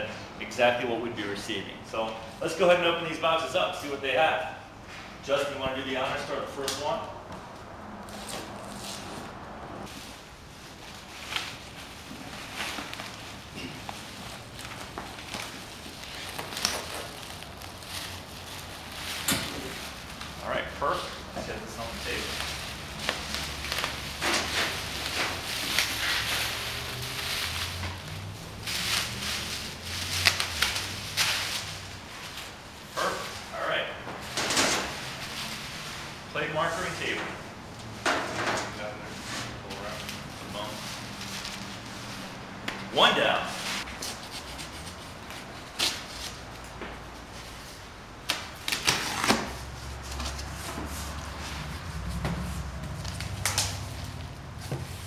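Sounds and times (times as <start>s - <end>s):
bubble wrap crinkling: 9.8s - 33.4s
knife slicing packing tape: 48.3s - 49.5s.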